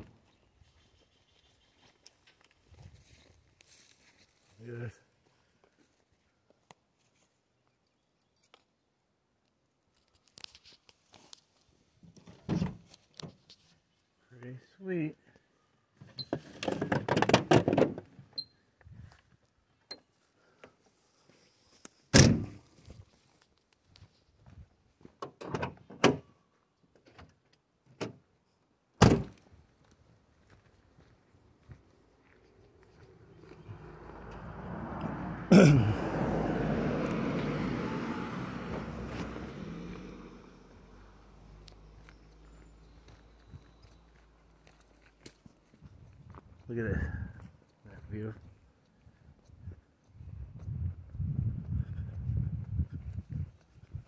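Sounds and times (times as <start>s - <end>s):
footsteps and handling crackles: 1.7s - 4.6s, 9.5s - 13.9s, 18.8s - 25.2s, 29.4s - 33.7s, 41.6s - 46.7s
car door slamming: 22.2s - 22.6s, 29.0s - 29.3s
car door thud: 22.2s - 22.6s, 29.0s - 29.3s.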